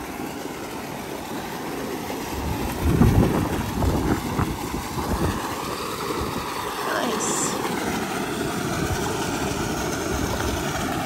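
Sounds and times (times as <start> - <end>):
wind buffeting microphone: 2.3 - 6.7.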